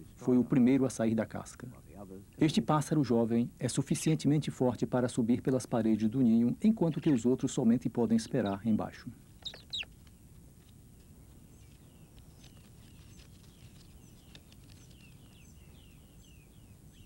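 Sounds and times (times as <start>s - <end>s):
parrots squeaking and chirping: 9.4s - 9.9s.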